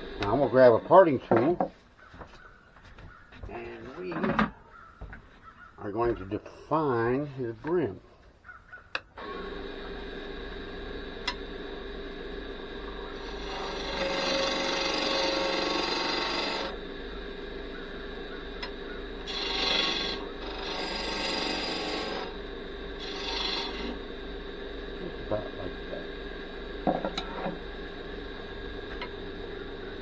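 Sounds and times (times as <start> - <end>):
wood lathe humming: 0.0 - 1.4, 9.2 - 30.0
tool scraping spinning wood: 0.0 - 1.7, 9.2 - 27.7.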